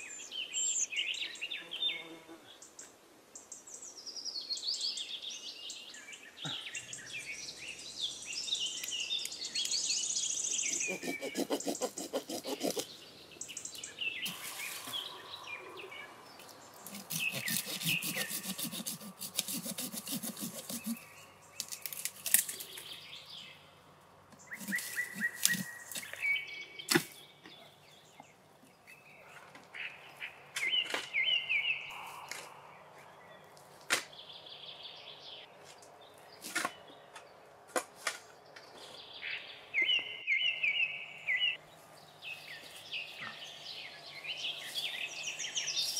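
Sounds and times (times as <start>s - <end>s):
birds chirping: 0.0s - 37.6s
hand saw cutting branches: 10.8s - 12.9s, 16.8s - 22.8s, 24.5s - 26.2s.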